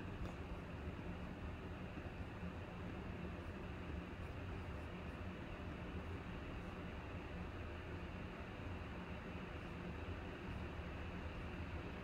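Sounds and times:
low hum and hiss of room noise: 0.0s - 12.0s.

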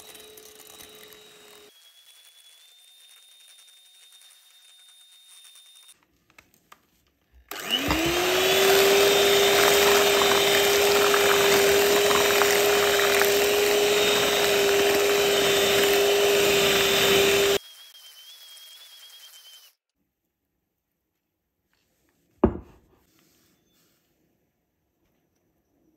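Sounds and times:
electric hand mixer whine: 0.0s - 5.8s, 7.5s - 19.7s.

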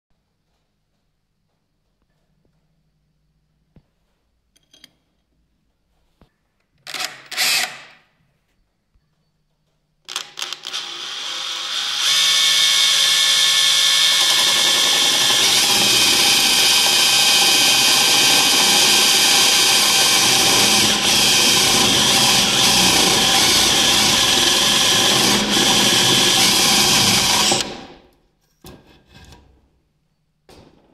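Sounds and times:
power drill whining: 10.1s - 28.0s.

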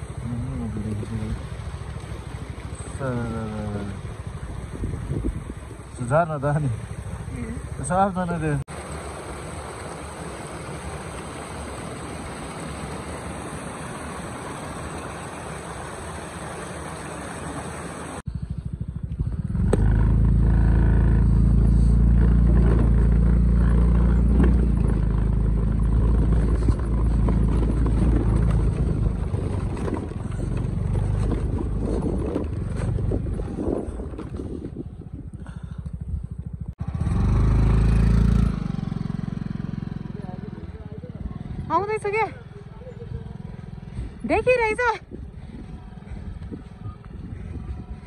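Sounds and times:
stream running: 0.0s - 18.3s
motorcycle engine droning: 0.0s - 48.0s.

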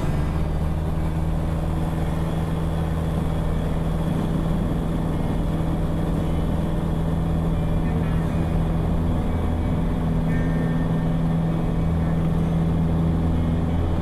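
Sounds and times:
airplane engine at high power: 0.0s - 14.0s.

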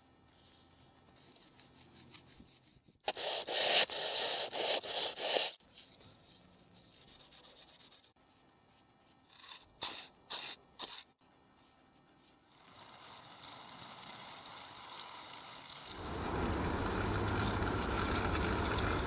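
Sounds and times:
quick scratching strokes: 1.2s - 8.4s.

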